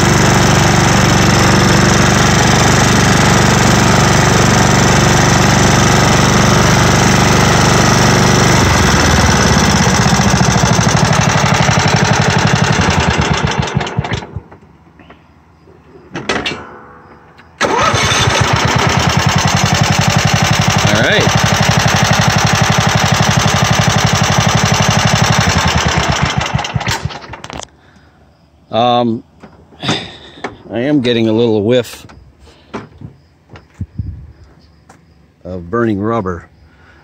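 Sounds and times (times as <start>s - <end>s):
engine cranking: 0.0s - 14.6s, 17.6s - 27.7s
lawn tractor engine running: 0.0s - 14.9s, 17.6s - 27.7s.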